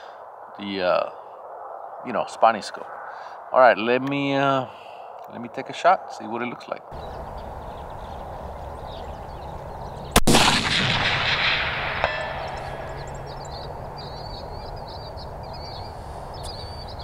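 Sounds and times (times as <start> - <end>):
birds chirping: 0.0 - 17.0
rifle shot: 10.1 - 13.5
bullet ringing on steel target: 11.5 - 13.4.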